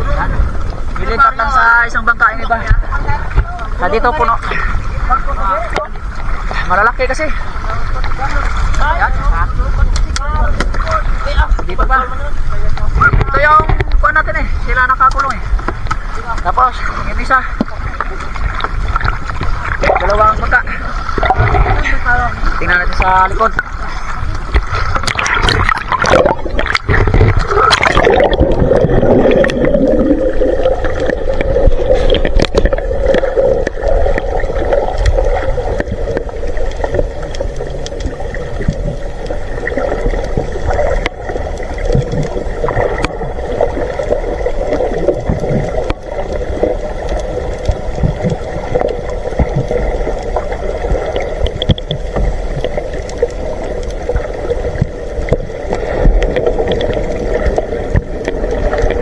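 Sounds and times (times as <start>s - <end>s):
water splashing: 0.0s - 59.0s.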